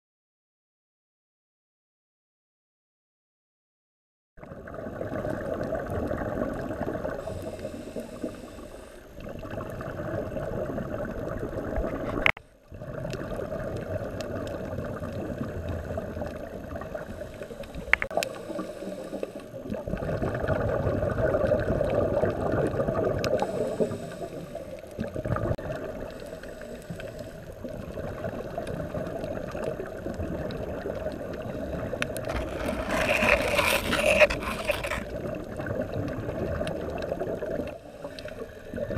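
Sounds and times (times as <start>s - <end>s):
underwater bubbles gurgling: 4.4s - 33.5s, 34.2s - 38.9s.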